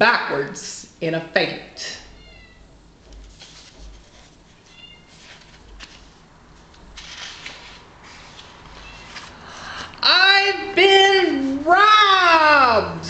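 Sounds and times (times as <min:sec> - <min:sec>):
book pages rustling: 0:03.0 - 0:10.0
faint high-pitched squeaks: 0:04.6 - 0:05.4.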